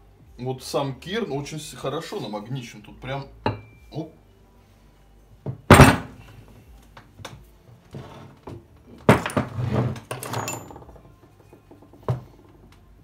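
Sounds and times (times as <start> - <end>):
parts knocking and scraping: 8.0 - 12.6.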